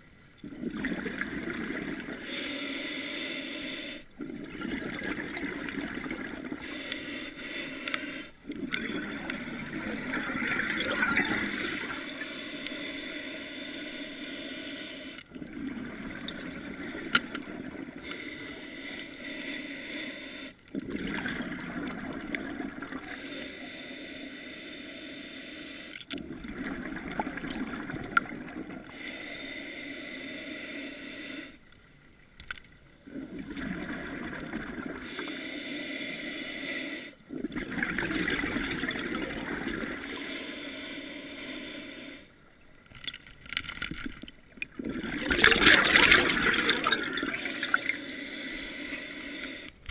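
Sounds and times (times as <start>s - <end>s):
muffled underwater rushing: 0.4s - 2.9s, 4.2s - 23.3s, 26.2s - 29.0s, 33.0s - 35.3s, 37.3s - 41.8s, 44.6s - 49.9s.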